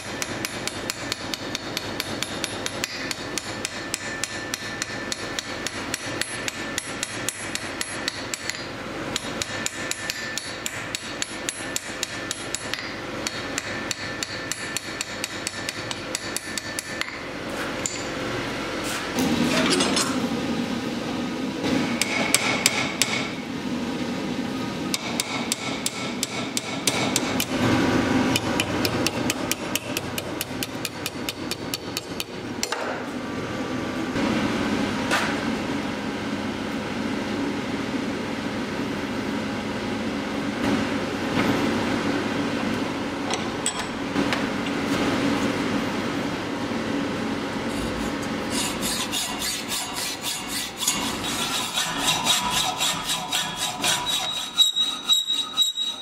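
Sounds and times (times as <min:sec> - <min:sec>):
hammer striking steel on anvil: 0:00.0 - 0:18.2, 0:21.9 - 0:23.4, 0:24.9 - 0:27.6, 0:28.3 - 0:33.0.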